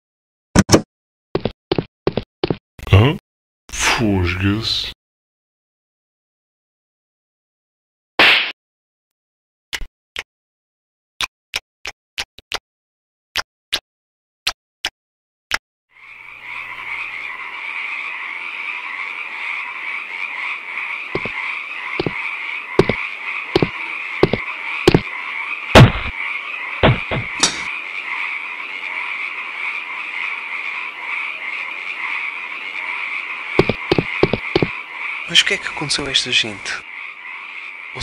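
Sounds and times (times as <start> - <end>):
frogs croaking: 15.9 - 38.0
sharp knocks: 23.6 - 25.1, 26.8 - 27.7.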